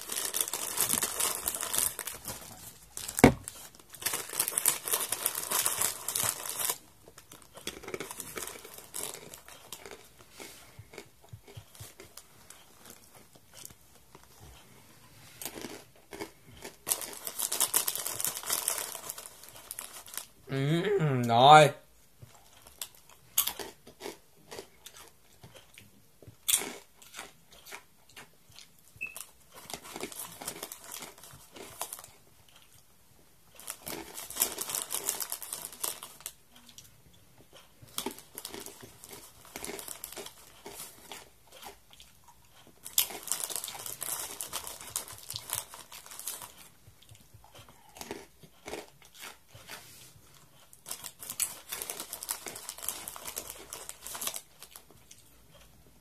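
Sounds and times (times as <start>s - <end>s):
plastic wrapper crinkling: 0.0s - 10.0s, 16.8s - 20.3s, 33.6s - 36.4s, 42.9s - 46.6s, 50.8s - 54.8s
chewing crunchy snack: 0.0s - 14.6s, 15.4s - 20.4s, 22.2s - 32.9s, 33.5s - 55.8s.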